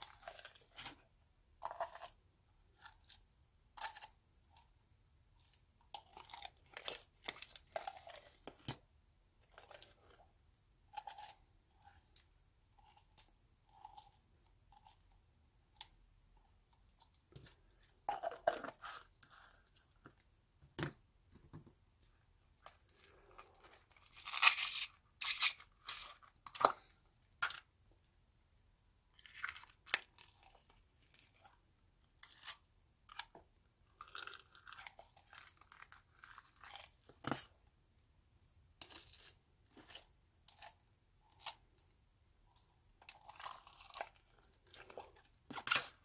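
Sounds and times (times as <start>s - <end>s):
slime crackling and squelching: 5.4s - 8.8s, 22.6s - 27.7s, 43.0s - 46.0s.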